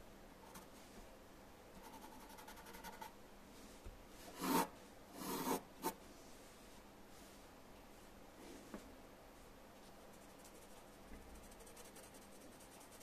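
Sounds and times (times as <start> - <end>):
pencil scratching on paper: 4.4 - 6.0, 11.4 - 13.0.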